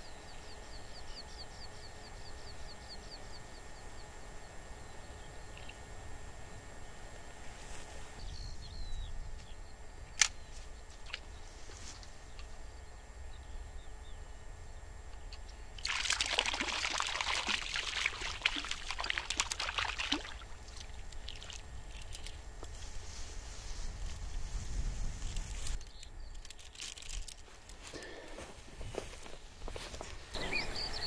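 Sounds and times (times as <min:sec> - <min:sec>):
sharp click: 0:10.1 - 0:11.2
fish splashing at water surface: 0:15.8 - 0:21.7.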